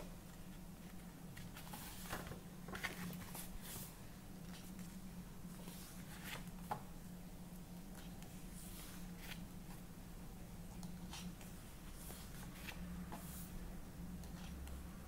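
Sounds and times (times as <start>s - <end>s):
paper pages rustling: 0.5s - 5.0s.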